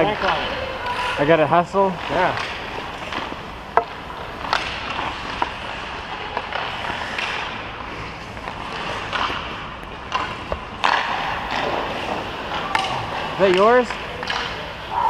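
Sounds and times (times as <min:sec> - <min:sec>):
skate blades scraping on ice: 0:00.2 - 0:09.6, 0:10.2 - 0:14.7
hockey stick clicking on puck: 0:06.2 - 0:07.6, 0:08.4 - 0:12.9, 0:13.5 - 0:14.6.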